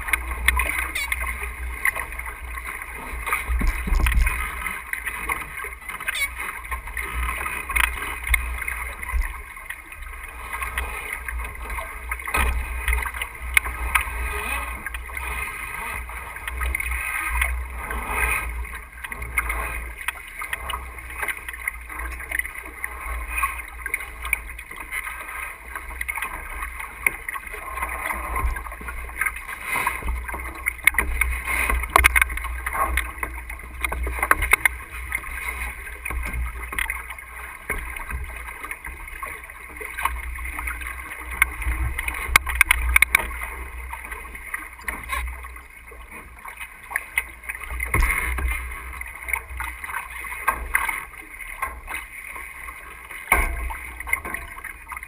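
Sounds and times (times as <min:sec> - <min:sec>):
water rushing along hull: 0:00.0 - 0:55.0
wind rumbling on microphone: 0:02.4 - 0:04.8.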